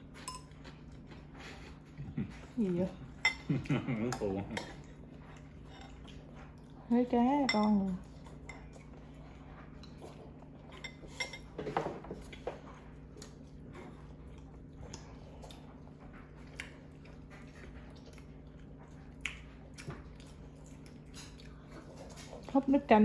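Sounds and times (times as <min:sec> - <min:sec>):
chewing: 0:00.0 - 0:23.0
steady low hum: 0:00.0 - 0:23.0
utensils clinking on plates: 0:09.8 - 0:12.3.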